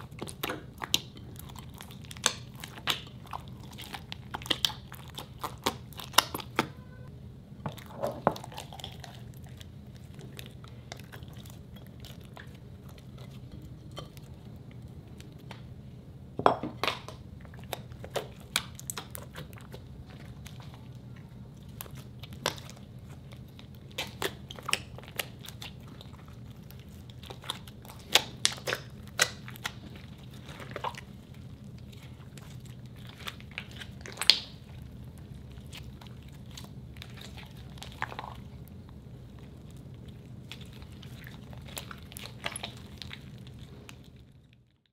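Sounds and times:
faint steady hum: 0.0s - 44.9s
slime crackling and popping: 0.1s - 6.7s, 21.5s - 44.9s.

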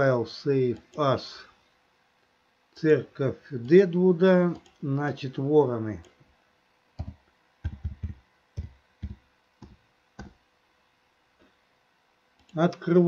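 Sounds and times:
keyboard keystrokes: 7.0s - 10.4s.

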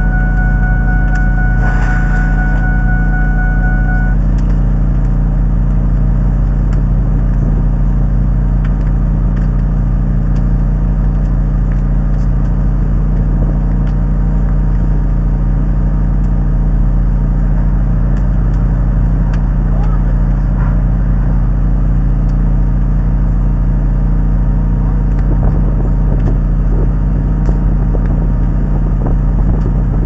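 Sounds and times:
high steady tone: 0.0s - 4.2s
fire engine pump running: 0.0s - 30.0s.

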